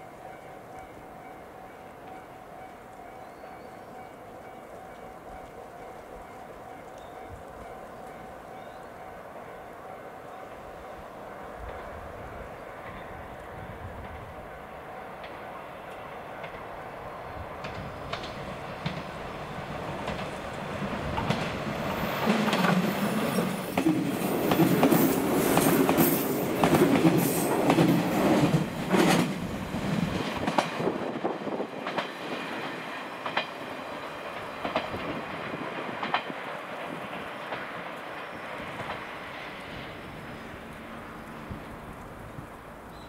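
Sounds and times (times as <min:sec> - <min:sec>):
train wheels clattering over rail joints: 0:17.6 - 0:39.6.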